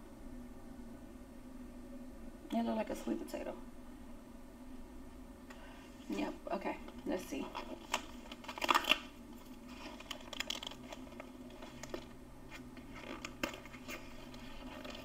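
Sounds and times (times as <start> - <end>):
plastic wrapper crinkling: 6.9 - 15.0.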